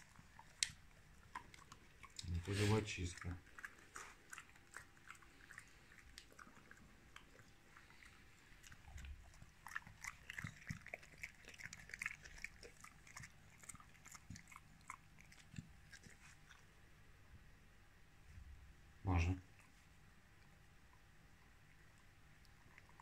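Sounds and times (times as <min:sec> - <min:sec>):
dog chewing and gnawing: 0:00.0 - 0:16.8, 0:22.5 - 0:23.0
crunches and clicks of teeth: 0:00.4 - 0:02.4.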